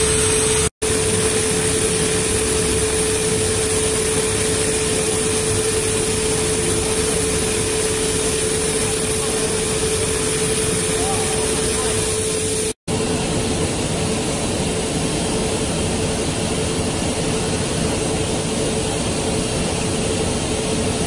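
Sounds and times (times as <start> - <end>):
overlock sewing machine running: 0.0 - 12.8.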